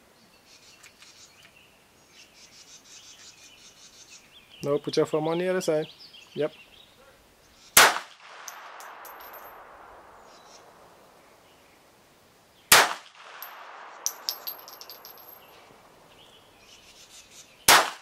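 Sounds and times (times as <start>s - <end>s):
pistol shot: 7.8s - 9.1s, 12.7s - 13.8s, 17.7s - 18.0s
light metallic clinks: 8.5s - 9.6s, 13.3s - 15.8s.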